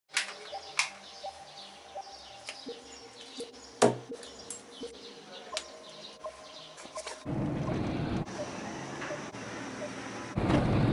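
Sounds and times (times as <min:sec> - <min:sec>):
faint bird chirps: 0:00.2 - 0:07.2.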